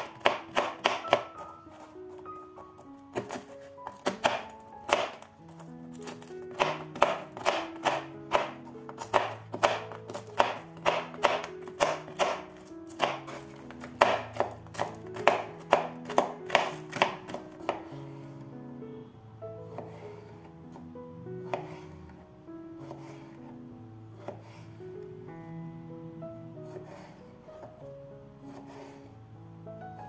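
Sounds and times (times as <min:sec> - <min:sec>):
knife chopping on cutting board: 0:00.0 - 0:02.2, 0:03.1 - 0:17.9, 0:19.6 - 0:22.0, 0:22.8 - 0:23.4, 0:24.2 - 0:24.6, 0:26.6 - 0:27.7, 0:28.5 - 0:29.0
background music: 0:00.0 - 0:30.0.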